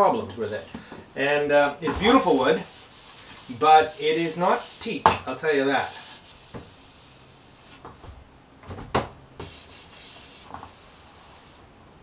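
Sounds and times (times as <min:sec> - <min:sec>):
cloth rubbing on wood: 0:01.8 - 0:08.2, 0:09.4 - 0:11.6.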